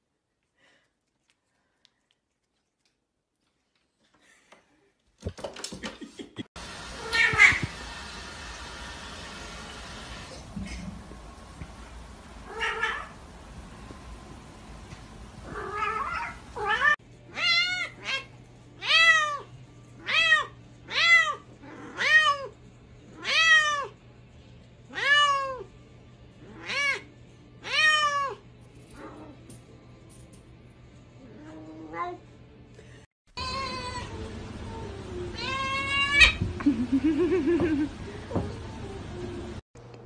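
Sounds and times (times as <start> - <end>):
cat meowing: 7.0 - 7.7, 12.5 - 13.2, 15.4 - 19.4, 33.4 - 34.2, 35.3 - 36.4.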